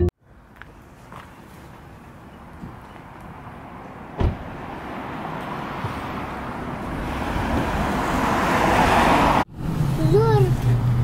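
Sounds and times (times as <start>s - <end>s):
car rushing on road: 0.3s - 11.0s
car door shutting: 4.2s - 4.6s.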